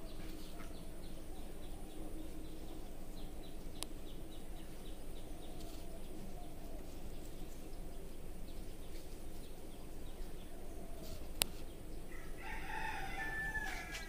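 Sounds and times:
faint bird chirps: 0.0s - 14.0s
rooster crowing: 12.1s - 14.0s.

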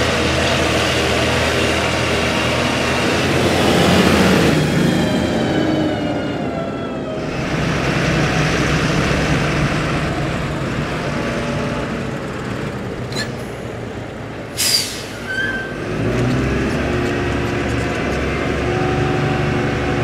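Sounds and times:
tractor engine driving past: 0.0s - 20.0s
air brake hiss: 14.5s - 15.6s.

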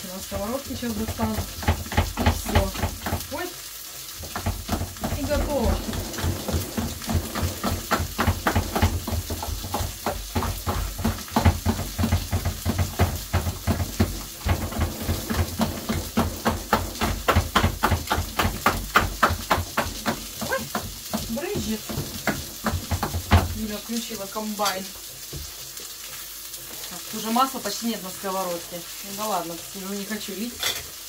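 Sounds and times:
potato masher thudding in saucepan: 0.8s - 3.5s, 4.2s - 23.6s.

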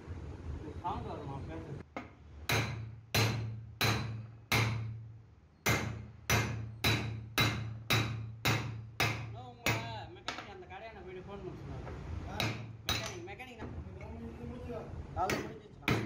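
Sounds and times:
hammer striking steel: 2.0s - 5.0s, 5.6s - 10.0s, 12.4s - 13.2s, 15.2s - 16.0s.

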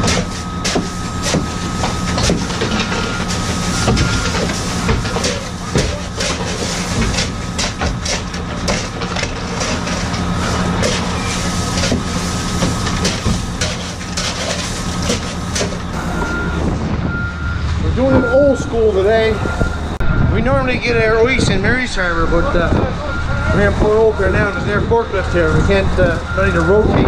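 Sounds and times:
shovel scraping crushed ice: 0.0s - 15.8s
steady engine hum: 0.0s - 27.0s.

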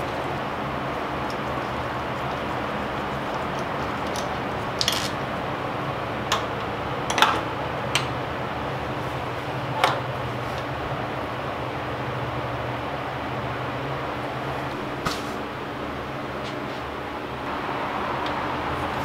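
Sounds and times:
steady background hum: 0.0s - 19.0s
hands handling engine parts clicking: 3.2s - 5.3s.

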